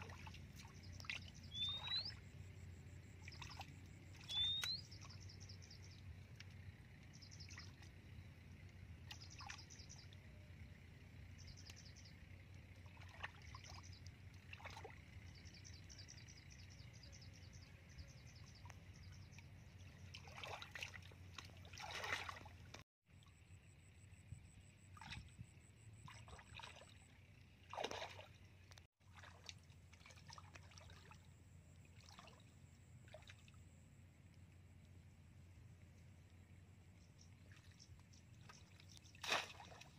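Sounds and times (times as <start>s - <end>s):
faint splashing of shallow water: 0.0s - 23.4s, 24.6s - 39.9s
bird chirping: 0.7s - 6.0s.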